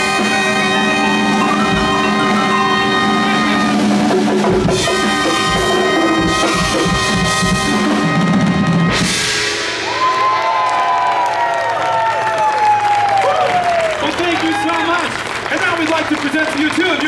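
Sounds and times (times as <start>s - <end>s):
held chords: 0.0s - 10.0s
drum roll with crash: 0.0s - 10.4s
crowd cheering and whooping: 0.1s - 3.6s, 9.8s - 17.0s.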